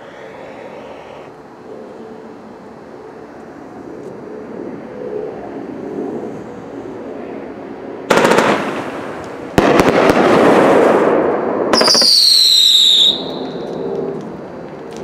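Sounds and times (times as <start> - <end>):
firework shots and crackling: 8.1 - 13.7
firework whistle: 11.7 - 13.8.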